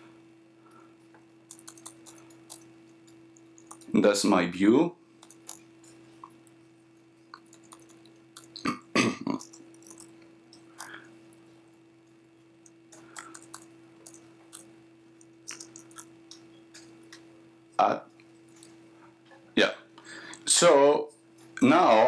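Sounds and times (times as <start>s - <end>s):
low electrical hum: 0.0s - 22.0s
laptop keyboard typing clicks: 1.5s - 3.9s, 5.2s - 5.6s, 7.4s - 8.6s, 12.6s - 14.7s, 15.5s - 16.9s.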